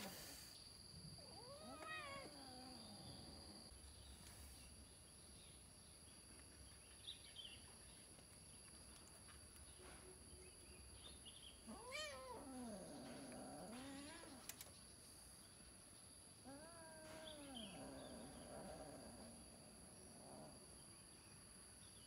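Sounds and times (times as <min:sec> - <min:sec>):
kitten meowing faintly: 0:01.2 - 0:02.5, 0:11.7 - 0:12.5.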